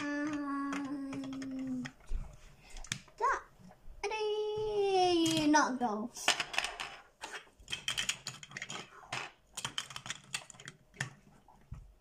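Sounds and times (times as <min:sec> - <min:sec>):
plastic bricks clicking: 0:00.0 - 0:02.0, 0:06.3 - 0:11.3.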